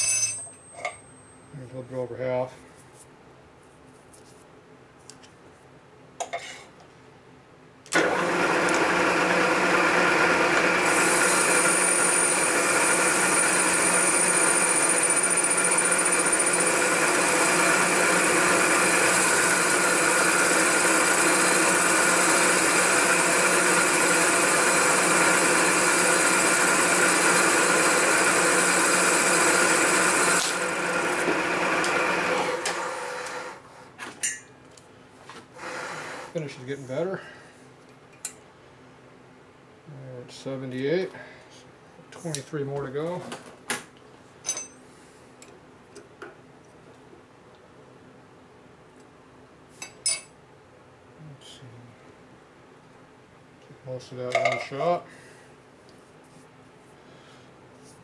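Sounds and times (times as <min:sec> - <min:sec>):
milling machine spindle running: 0:08.0 - 0:33.4.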